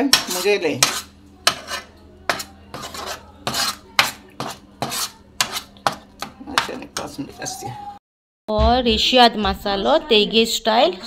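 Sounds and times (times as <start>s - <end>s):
metal spoon scraping a pan: 0.0s - 7.3s.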